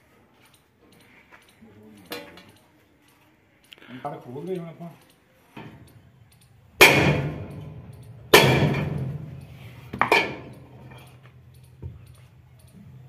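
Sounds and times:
sledgehammer striking steel drift: 0:06.8 - 0:09.4.

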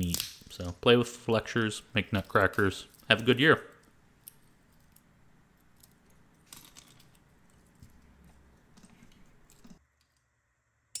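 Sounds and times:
pecan shells crackling and clicking: 0:00.0 - 0:00.6, 0:02.2 - 0:10.2.

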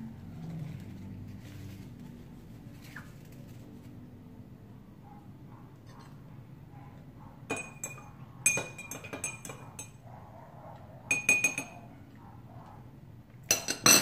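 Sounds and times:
metal spoon clinking on glass: 0:07.5 - 0:10.0, 0:11.1 - 0:11.9, 0:13.5 - 0:14.0.

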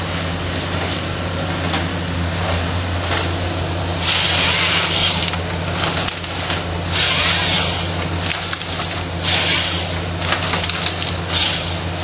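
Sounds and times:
excavator diesel engine running: 0:00.0 - 0:12.0
loud hiss: 0:03.8 - 0:05.4, 0:06.3 - 0:08.5, 0:09.2 - 0:10.1, 0:11.2 - 0:12.0.

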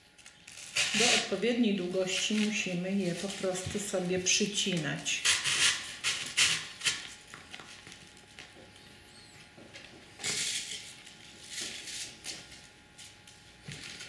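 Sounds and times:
paper flowers rustling and scraping: 0:00.6 - 0:04.9.

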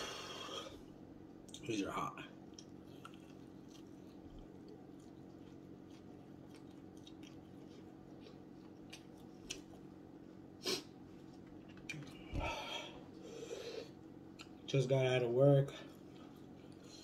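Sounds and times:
steady low hum: 0:00.0 - 0:17.0
wet chewing and mouth clicks: 0:02.4 - 0:10.0, 0:14.2 - 0:14.7.

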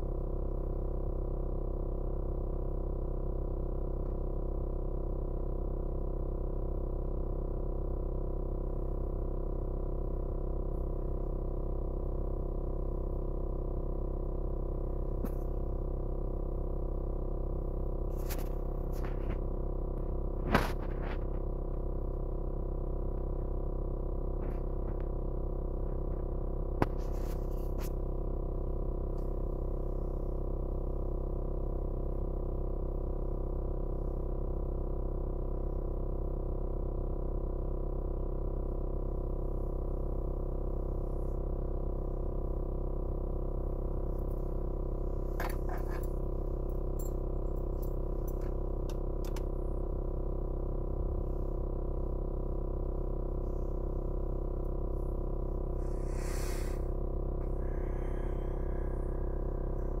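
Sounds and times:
synthesizer drone: 0:55.8 - 1:00.0.

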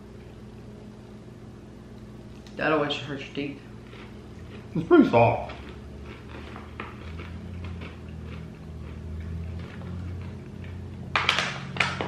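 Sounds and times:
chewing sounds: 0:03.8 - 0:11.0.

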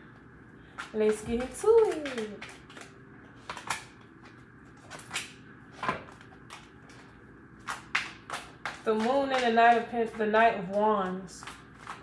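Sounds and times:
cards snapping on a hard countertop: 0:00.8 - 0:07.0, 0:07.6 - 0:10.2, 0:11.4 - 0:12.0.

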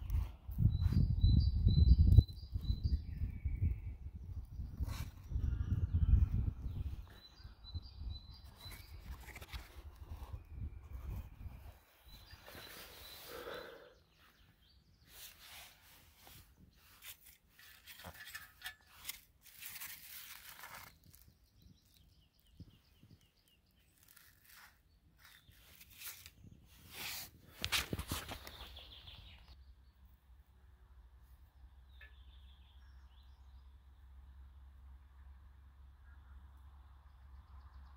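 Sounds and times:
rustling of dry bark and sticks: 0:04.6 - 0:29.6.

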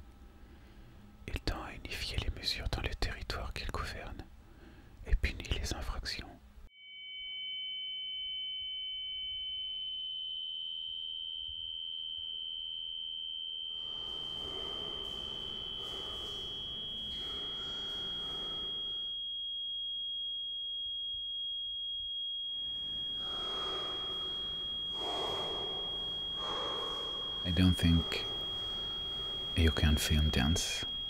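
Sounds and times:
high electronic sine tone: 0:06.7 - 0:31.0.

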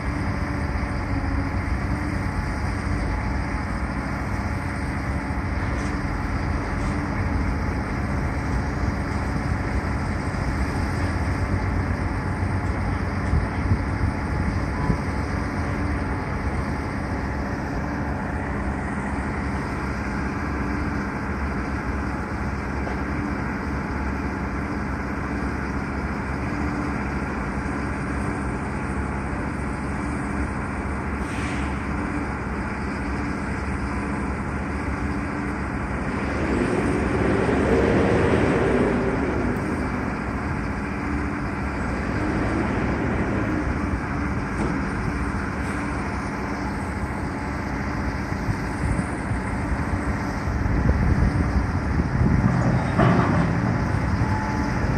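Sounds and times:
truck engine rumbling: 0:00.0 - 0:54.9.

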